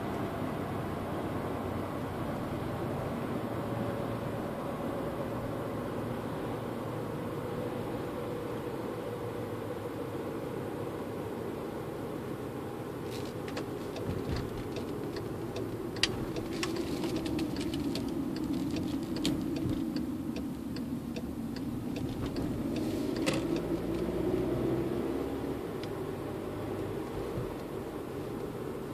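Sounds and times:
road noise: 0.0s - 28.9s
light clicks and ticks: 13.2s - 24.1s.

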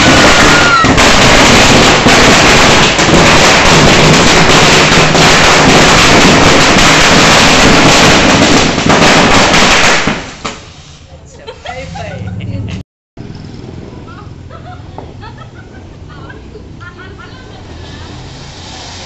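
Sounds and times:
firework crackles: 0.0s - 11.1s, 16.4s - 19.0s
firework fountain hissing: 0.0s - 12.0s, 14.1s - 19.0s.

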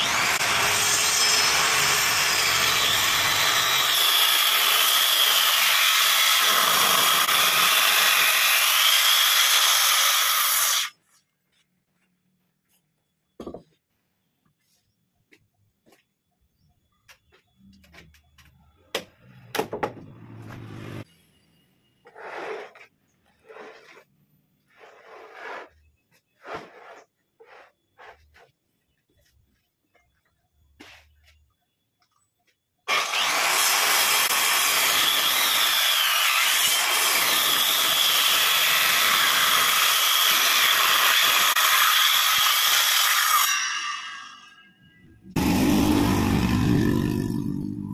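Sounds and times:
circular saw cutting timber: 0.0s - 11.0s, 22.0s - 28.5s, 32.9s - 47.9s
wooden block knocking on workbench: 13.4s - 13.7s
wooden block scraping: 22.0s - 29.3s.

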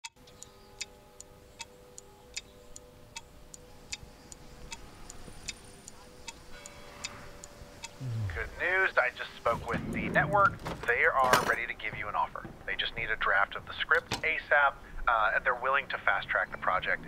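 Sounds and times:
clock ticking: 0.0s - 6.8s, 7.4s - 8.5s, 9.1s - 11.2s
low steady hum: 7.4s - 10.9s.

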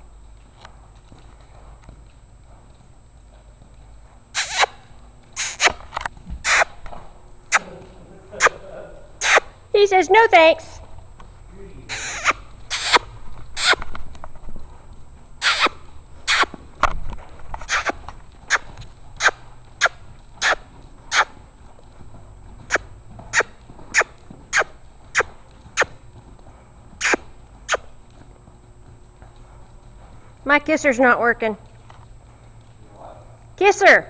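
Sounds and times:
kissing smacks: 4.4s - 4.8s, 5.4s - 6.8s, 7.5s - 7.7s, 9.2s - 9.5s, 11.9s - 13.9s, 15.4s - 16.5s, 17.6s - 21.3s, 22.7s - 25.9s, 27.0s - 27.9s.

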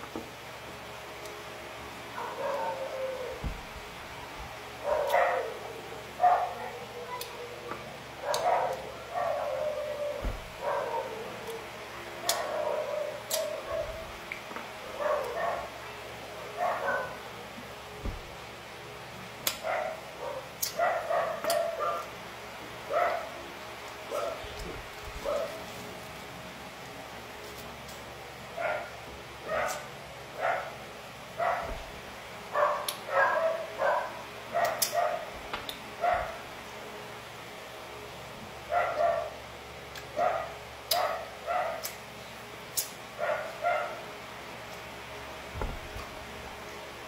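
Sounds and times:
dog barking: 2.2s - 3.4s, 4.8s - 7.2s, 8.2s - 11.4s, 12.2s - 14.1s, 14.9s - 15.8s, 16.5s - 17.3s, 19.6s - 22.1s, 22.9s - 23.4s, 24.1s - 24.5s, 25.2s - 25.6s, 28.6s - 30.8s, 31.4s - 31.9s, 32.5s - 35.4s, 36.0s - 36.5s, 38.7s - 39.4s, 40.2s - 41.9s, 43.2s - 44.1s.

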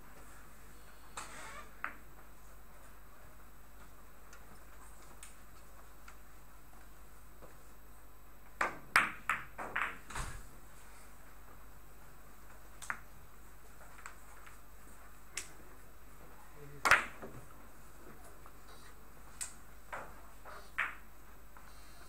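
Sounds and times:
billiard balls clicking: 8.4s - 10.1s, 12.4s - 18.7s, 19.3s - 21.7s
cue striking ball: 8.6s - 10.1s.

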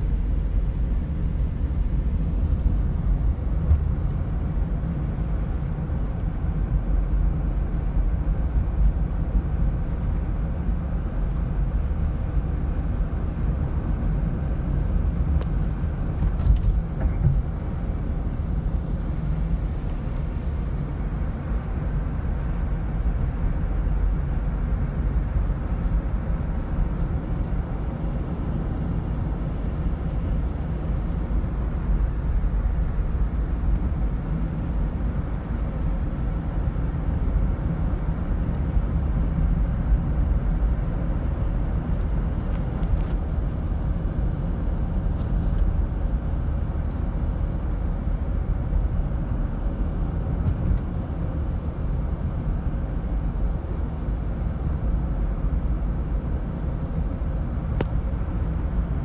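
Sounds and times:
low rumble of tyres and engine: 0.0s - 59.0s.

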